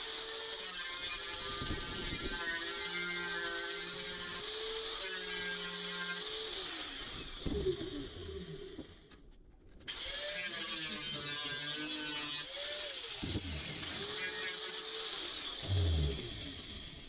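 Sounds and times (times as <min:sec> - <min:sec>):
angle grinder running: 0:09.9 - 0:17.0.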